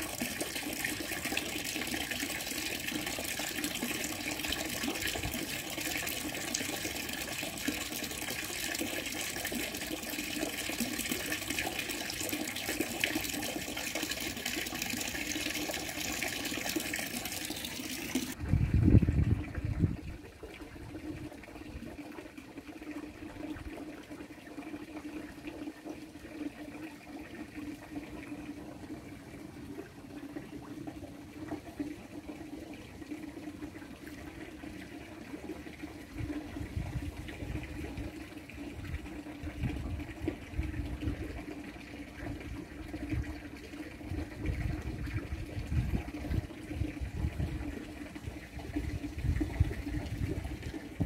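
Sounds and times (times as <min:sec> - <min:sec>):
water running: 0:00.0 - 0:18.4.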